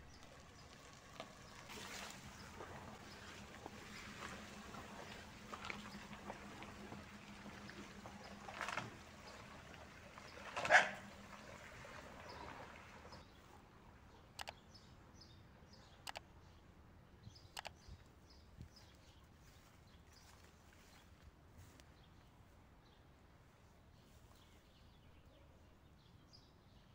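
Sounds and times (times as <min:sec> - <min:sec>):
sharp clicks: 0:14.4 - 0:14.6, 0:16.0 - 0:16.2, 0:17.5 - 0:17.8.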